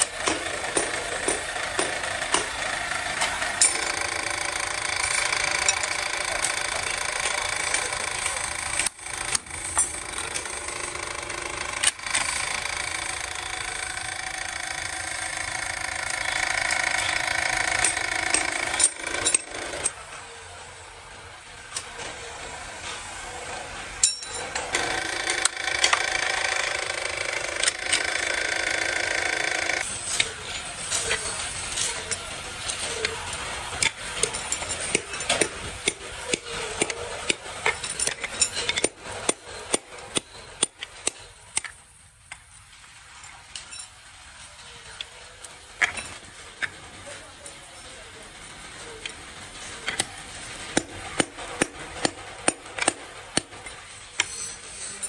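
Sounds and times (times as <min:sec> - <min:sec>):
power tool whining: 0:00.0 - 0:20.4, 0:21.7 - 0:29.9.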